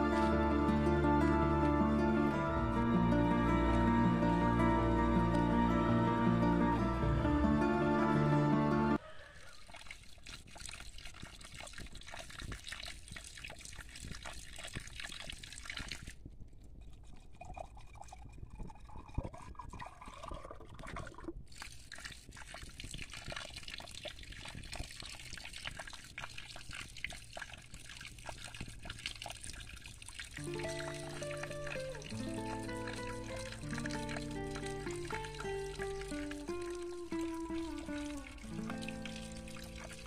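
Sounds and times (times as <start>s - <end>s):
water trickling and dripping: 9.4s - 40.0s.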